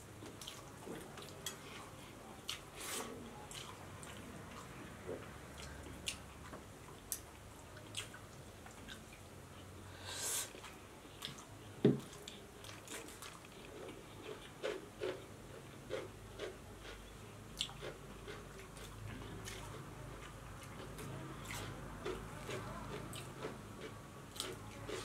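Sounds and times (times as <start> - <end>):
wet mouth clicks and chewing: 17.6 - 25.0.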